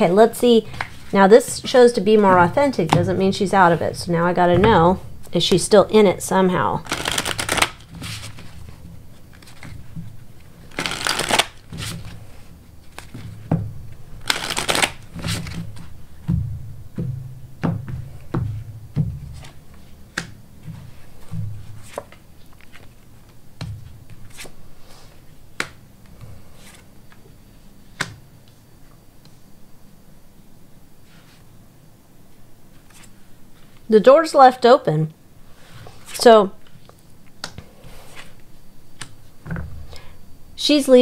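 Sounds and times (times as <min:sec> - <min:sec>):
cards being riffle-shuffled: 0:06.8 - 0:09.8, 0:10.6 - 0:12.2, 0:14.2 - 0:15.9.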